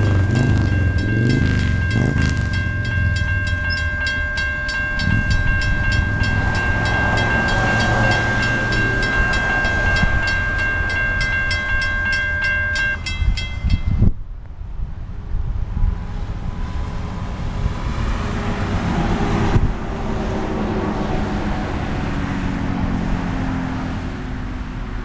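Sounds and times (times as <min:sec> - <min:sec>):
steady high tone: 0:00.0 - 0:14.1
crossing bell ringing: 0:00.0 - 0:14.2
diesel locomotive rumble: 0:00.0 - 0:25.0.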